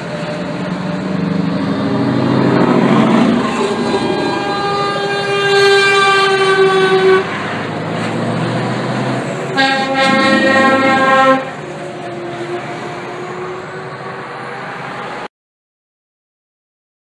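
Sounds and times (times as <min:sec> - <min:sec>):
truck engine and tyre noise: 0:00.0 - 0:15.3
truck air horn blasts: 0:02.7 - 0:07.5, 0:09.5 - 0:13.9.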